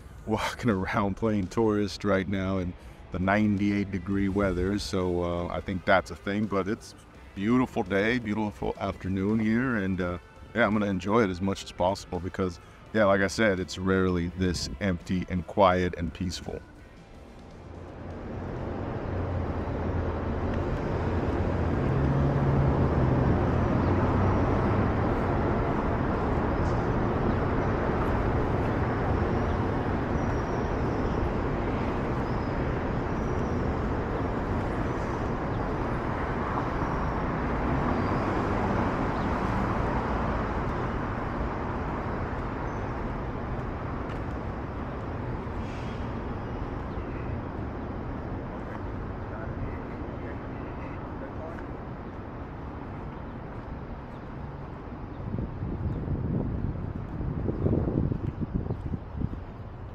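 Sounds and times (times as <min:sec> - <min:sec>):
road traffic hum: 0:00.0 - 0:59.9
vehicle engine rumble: 0:15.9 - 0:59.9.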